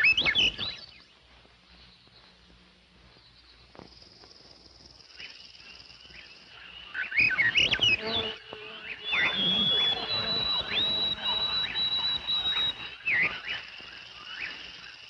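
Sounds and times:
birds chirping and squawking: 0:00.0 - 0:01.2, 0:05.2 - 0:15.0
faint insect buzzing: 0:03.7 - 0:15.0.

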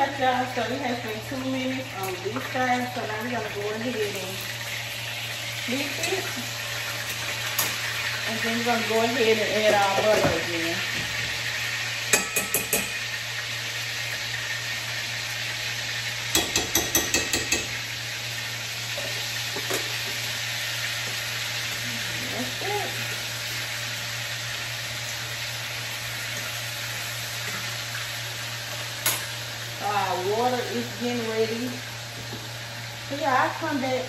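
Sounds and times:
steak sizzling in a frying pan: 0:00.0 - 0:34.0
utensils tapping a pan: 0:12.1 - 0:13.0, 0:16.3 - 0:17.8.

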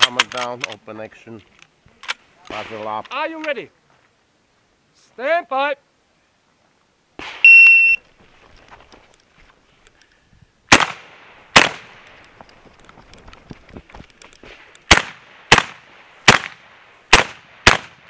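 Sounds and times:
shotgun shots: 0:07.2 - 0:07.6, 0:10.7 - 0:12.1, 0:14.4 - 0:18.0
shot timer beep: 0:07.5 - 0:08.0.

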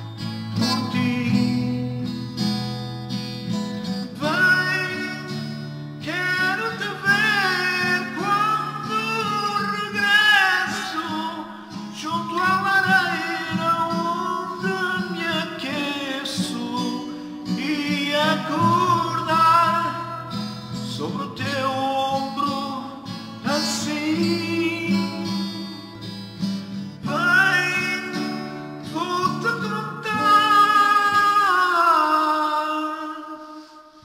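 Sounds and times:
man singing a ballad: 0:00.0 - 0:02.6, 0:03.8 - 0:34.0
acoustic guitar strumming: 0:00.0 - 0:34.0.

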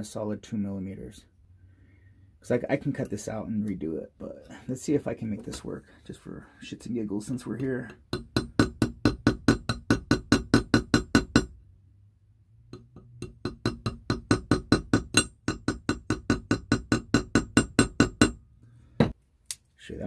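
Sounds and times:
small hammer tapping metal: 0:07.8 - 0:11.5, 0:12.7 - 0:18.4.

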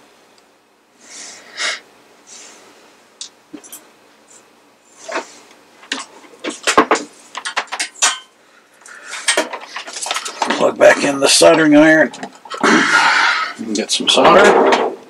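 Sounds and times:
rattling knocks: 0:14.2 - 0:15.0.

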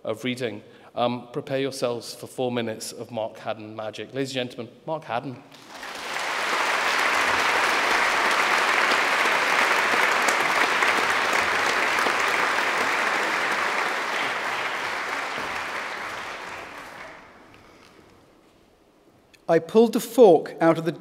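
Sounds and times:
audience applauding: 0:05.5 - 0:18.0.

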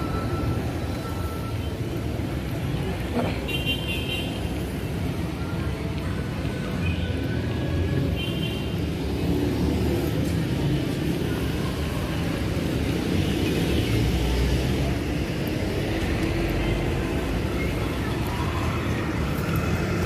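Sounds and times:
car engines passing: 0:08.8 - 0:20.0.

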